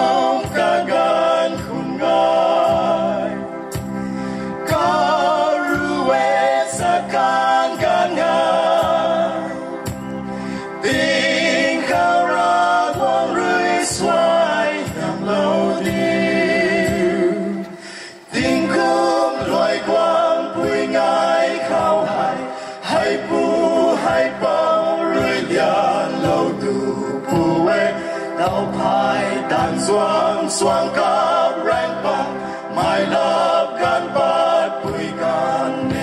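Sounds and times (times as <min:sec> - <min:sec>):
men singing into microphones: 0:00.0 - 0:36.0.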